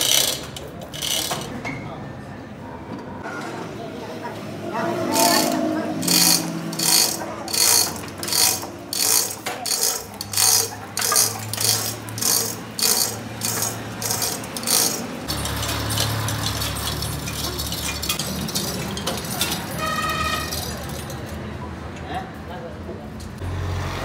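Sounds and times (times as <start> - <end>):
mechanical ratcheting clicks: 0.0 - 1.5, 5.2 - 19.7
steady mechanical noise: 0.0 - 1.7, 2.8 - 21.6.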